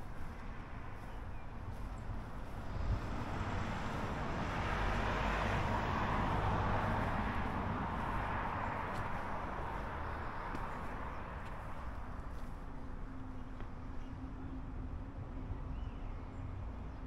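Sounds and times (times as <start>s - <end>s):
vehicle driving past: 1.7s - 11.9s.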